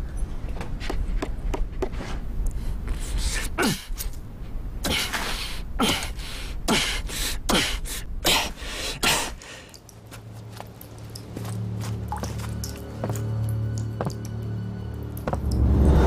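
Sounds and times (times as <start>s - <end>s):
man panting hard: 4.9s - 9.8s.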